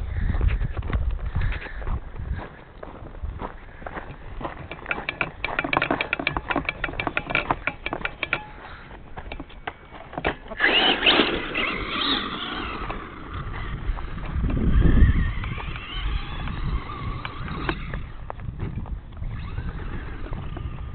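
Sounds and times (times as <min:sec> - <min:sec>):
footsteps on sandy ground: 0:00.1 - 0:20.9
toy truck motor whining: 0:10.3 - 0:18.2, 0:19.2 - 0:20.9.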